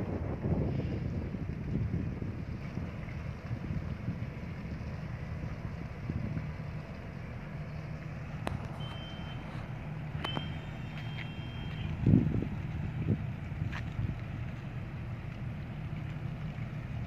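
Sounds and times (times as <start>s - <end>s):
wind gust on microphone: 0.0s - 4.7s, 11.8s - 14.3s
tugboat diesel engine drone: 0.0s - 17.0s
high electronic beeps: 8.8s - 9.4s, 10.2s - 11.9s.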